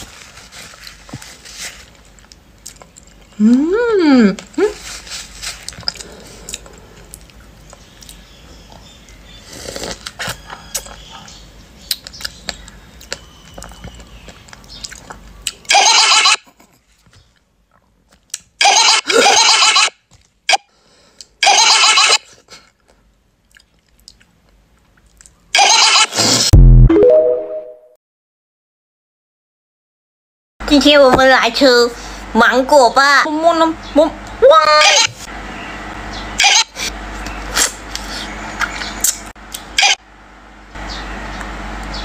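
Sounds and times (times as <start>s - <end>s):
loud eating noises: 1.9s - 16.8s, 34.2s - 40.0s
mouth clicks of chewing: 11.8s - 15.7s.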